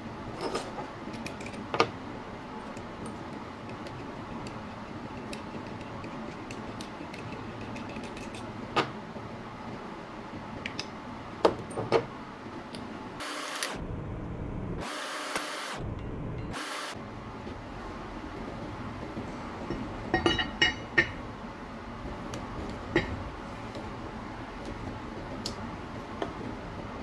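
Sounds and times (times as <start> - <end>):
workshop hum: 0.0 - 27.0.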